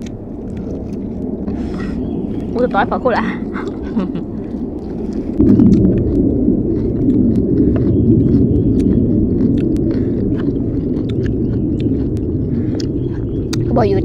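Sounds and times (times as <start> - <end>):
chewing food: 0.0 - 14.0
low rumble: 0.0 - 14.0
mouth clicks: 3.5 - 14.0.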